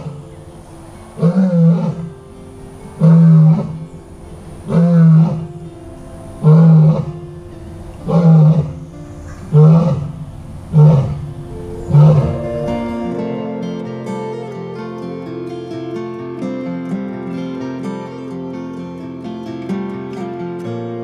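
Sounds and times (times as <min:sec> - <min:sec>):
acoustic guitar music: 0:00.0 - 0:21.0
lion roaring: 0:01.2 - 0:02.2, 0:03.0 - 0:03.9, 0:04.6 - 0:05.6, 0:06.4 - 0:07.2, 0:07.8 - 0:13.4.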